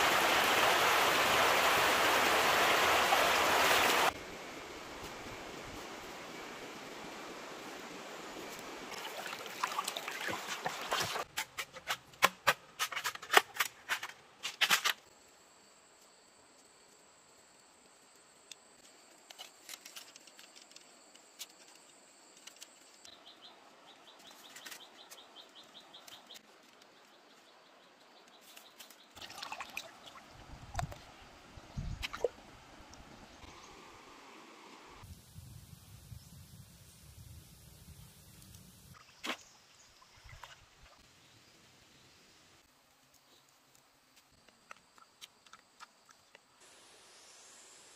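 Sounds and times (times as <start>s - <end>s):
stream water flowing: 0.0s - 11.3s, 29.2s - 35.0s
hands splashing water: 8.9s - 11.3s, 29.2s - 31.0s.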